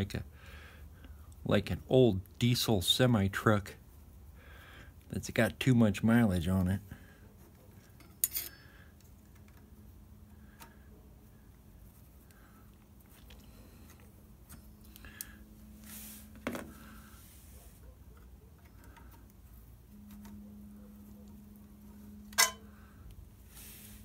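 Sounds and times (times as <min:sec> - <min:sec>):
faint steady hum: 0:00.0 - 0:24.0
metal parts clicking: 0:07.9 - 0:09.6, 0:22.3 - 0:22.7.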